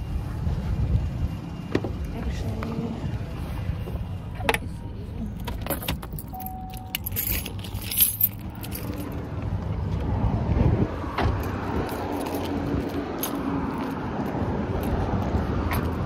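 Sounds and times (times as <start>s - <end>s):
low vehicle rumble: 0.0s - 16.0s
keys jangling: 5.4s - 9.2s
short beep: 6.3s - 7.0s.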